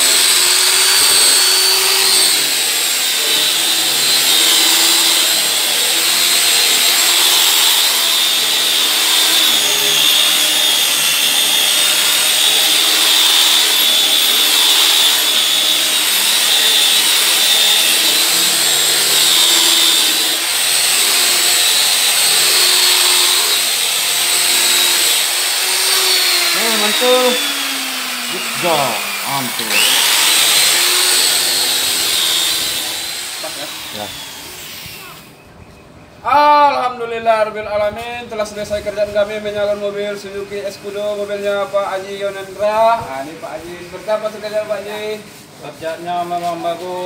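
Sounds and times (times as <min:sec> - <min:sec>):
electric polisher motor whine: 0:00.0 - 0:35.3.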